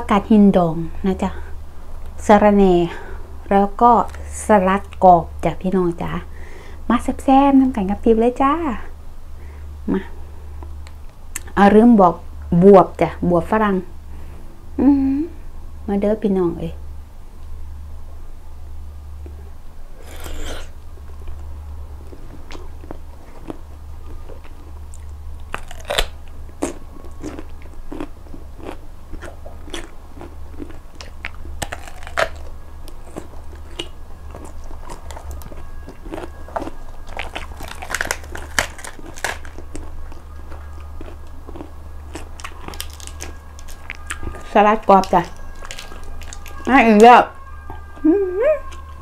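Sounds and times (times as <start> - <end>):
steady low hum: 0.0 - 49.0
crunchy biting and chewing: 19.9 - 21.4, 22.0 - 46.7.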